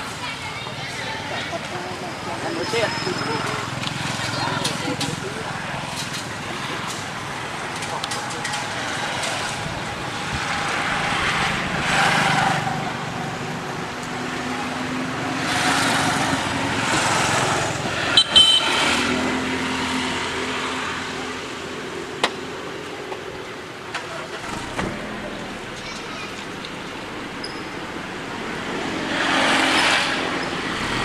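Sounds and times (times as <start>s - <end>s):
steady engine hum: 0.0s - 31.0s
vehicles passing: 0.0s - 31.0s.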